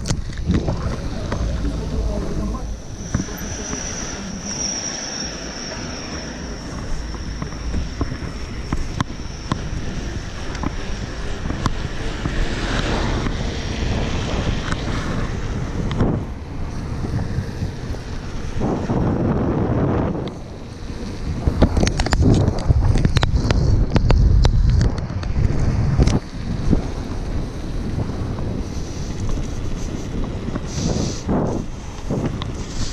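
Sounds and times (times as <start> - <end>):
thin high whine: 0.0 - 24.0
bicycle clicks: 0.0 - 32.9
wind rushing over microphone: 0.0 - 32.9.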